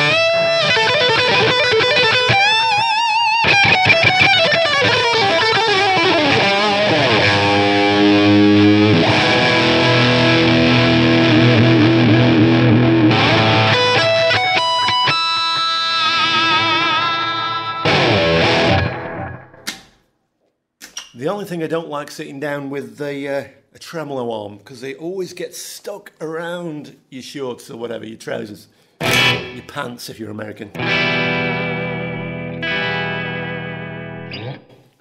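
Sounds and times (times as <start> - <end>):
electric guitar lead line: 0.0 - 19.7, 29.0 - 29.7, 30.8 - 34.9.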